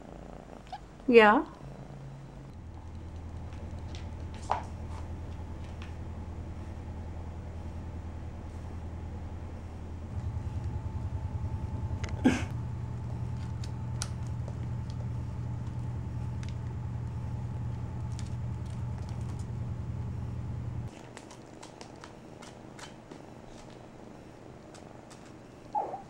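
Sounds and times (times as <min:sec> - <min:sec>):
kitten purring: 0:00.0 - 0:05.0, 0:24.7 - 0:26.0.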